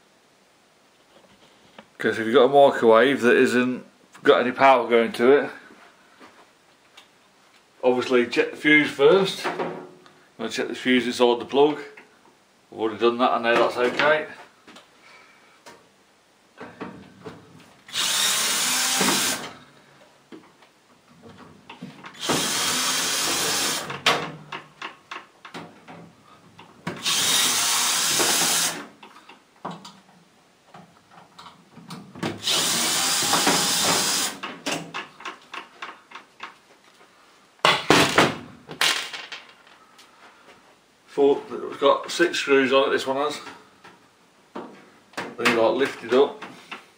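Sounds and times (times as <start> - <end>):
cordless drill spinning: 17.9 - 19.5, 22.2 - 23.9, 27.0 - 28.8, 32.4 - 34.4.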